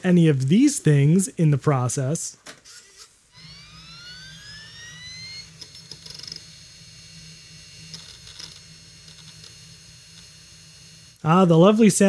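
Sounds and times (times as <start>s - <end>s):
disk drive whine: 3.3s - 11.2s.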